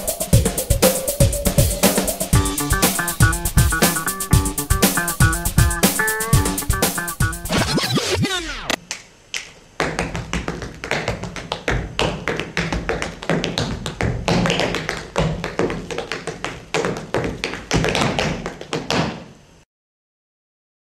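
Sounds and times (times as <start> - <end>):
tap shoes on hard floor: 9.8 - 19.3.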